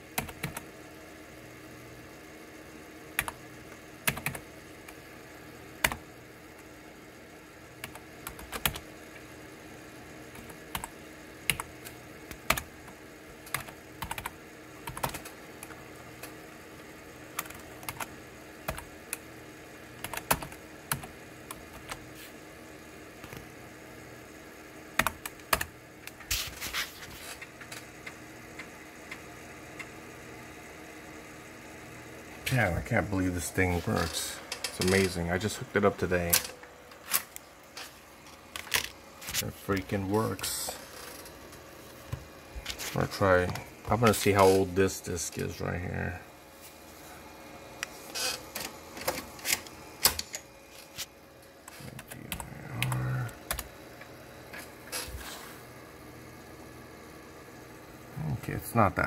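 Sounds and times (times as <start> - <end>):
steady low hum: 0.0 - 59.0
computer keyboard typing: 0.1 - 0.7, 3.2 - 3.4, 4.0 - 5.0, 5.8 - 6.0, 7.8 - 8.9, 10.3 - 15.8, 17.3 - 19.2, 20.0 - 22.0, 25.0 - 26.2, 51.9 - 53.7.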